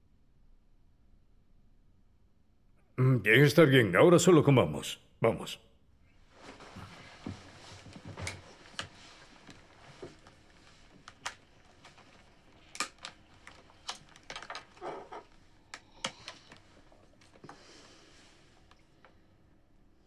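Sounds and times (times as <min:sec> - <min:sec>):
paper wrappers rustling: 0:07.9 - 0:15.3.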